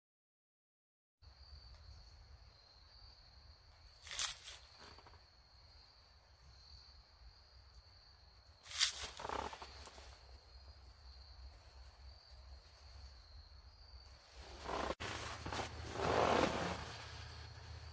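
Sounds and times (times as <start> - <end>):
short rustle: 8.7 - 10.2, 14.2 - 17.9.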